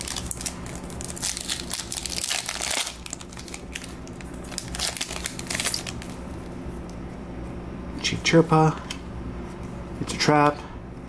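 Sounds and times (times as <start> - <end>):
plastic wrapper crinkling: 0.0 - 6.4.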